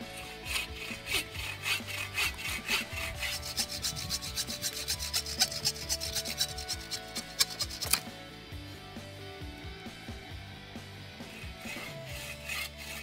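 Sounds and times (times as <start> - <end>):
hand saw cutting wood: 0.0 - 8.1, 11.2 - 13.0.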